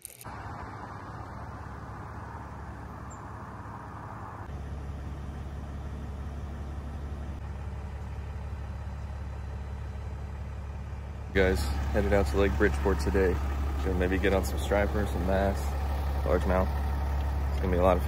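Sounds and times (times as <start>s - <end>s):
vehicle engine idling: 0.2s - 18.0s.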